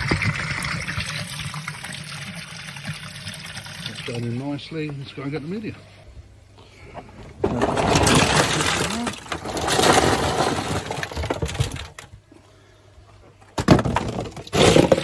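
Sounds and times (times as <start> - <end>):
plastic pieces rattling in a tub: 7.4 - 12.1, 13.7 - 15.0.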